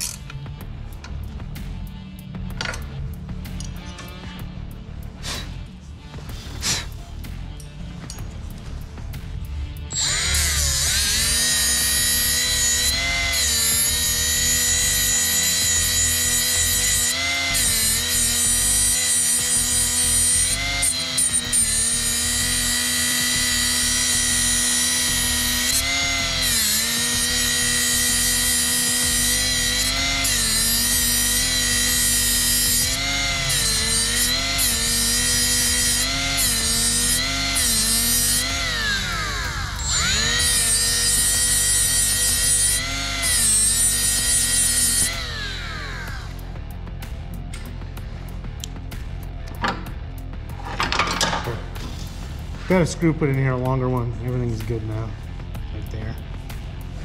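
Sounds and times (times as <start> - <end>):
electric drill drilling metal: 0.0 - 0.3, 9.9 - 46.5.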